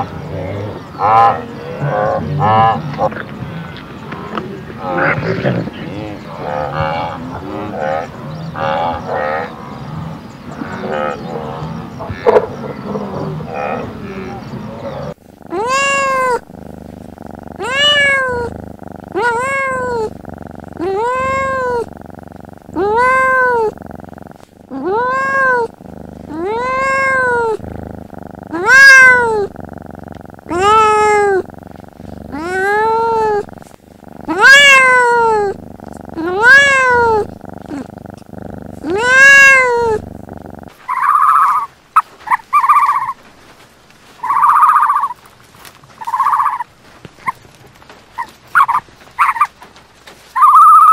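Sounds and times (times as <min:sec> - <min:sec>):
kittens mewing: 0:15.1 - 0:43.2, 0:46.0 - 0:47.4, 0:50.3 - 0:50.9
short animal calls: 0:15.1 - 0:43.2, 0:44.2 - 0:45.2, 0:46.0 - 0:47.4, 0:50.4 - 0:50.9.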